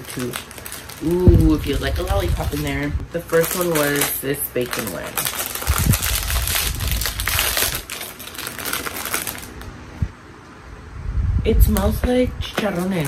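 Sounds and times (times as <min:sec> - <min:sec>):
plastic chip bag crinkling: 0:00.0 - 0:09.9, 0:12.4 - 0:13.0.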